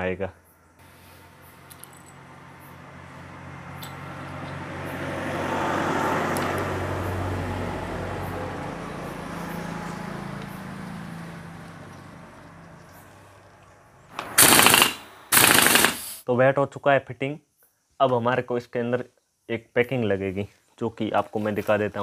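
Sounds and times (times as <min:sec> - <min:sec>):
vehicle engine running: 0:00.8 - 0:16.0.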